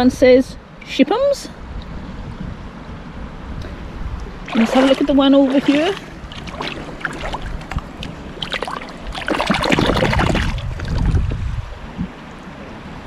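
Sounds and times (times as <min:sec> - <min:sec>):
river water sloshing and splashing: 0:03.7 - 0:13.0.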